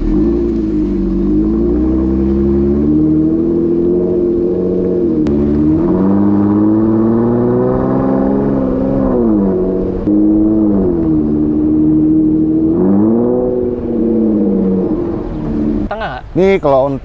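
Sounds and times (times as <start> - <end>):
engine revving: 0.0 - 15.9.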